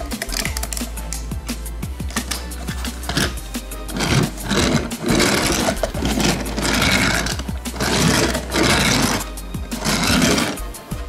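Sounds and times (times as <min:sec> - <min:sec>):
background music: 0:00.0 - 0:11.0
toy car wheels rolling: 0:02.2 - 0:10.6.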